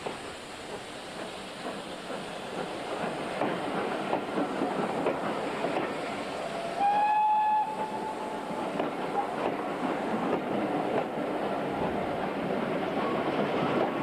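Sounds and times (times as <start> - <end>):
train wheels clattering over joints: 0.0 - 6.2, 8.4 - 14.0
locomotive whistle: 6.6 - 8.4.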